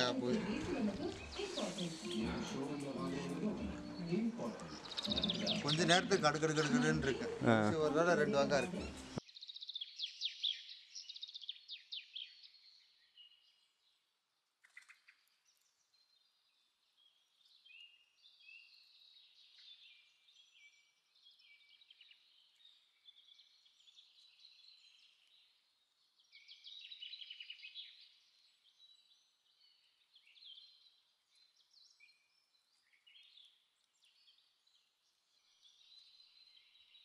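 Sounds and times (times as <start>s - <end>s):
small birds chirping and trilling: 0.0s - 37.0s.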